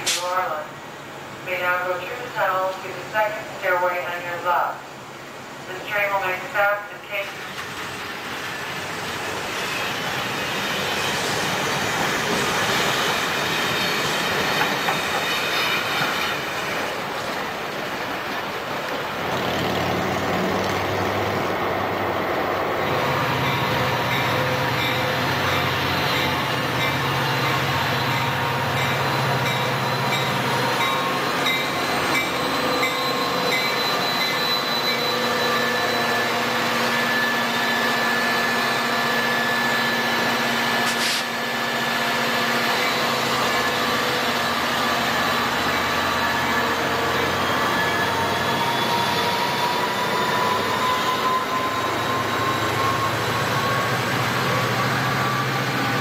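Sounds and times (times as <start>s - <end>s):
sharp click: 0.0s - 0.3s
train rumble: 0.0s - 36.5s
metallic squealing tones: 23.2s - 36.3s.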